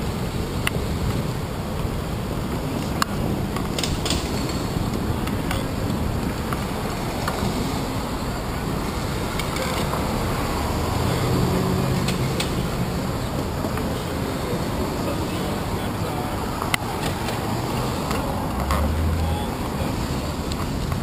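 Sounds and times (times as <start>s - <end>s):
street traffic noise: 0.0s - 21.0s
vehicle engine hum: 0.0s - 21.0s.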